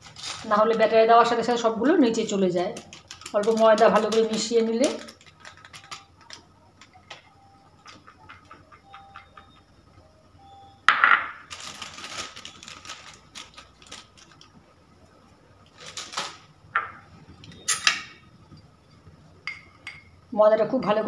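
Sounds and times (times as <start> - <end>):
plastic packet crinkling: 0.0 - 1.6, 2.2 - 7.2, 11.4 - 14.6, 15.6 - 16.5.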